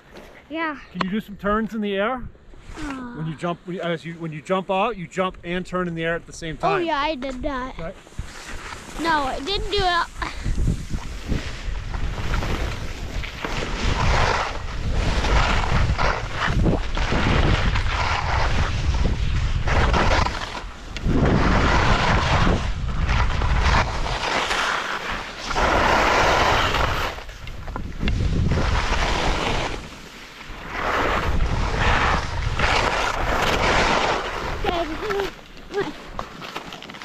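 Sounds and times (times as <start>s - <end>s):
wind buffeting microphone: 5.2s - 24.3s, 25.6s - 29.8s, 30.6s - 35.4s
skis scraping over snow: 7.8s - 37.0s.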